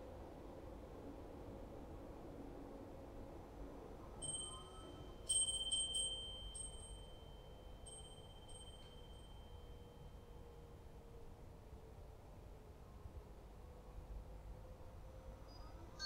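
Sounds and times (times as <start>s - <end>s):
small chime ringing: 4.2s - 10.0s.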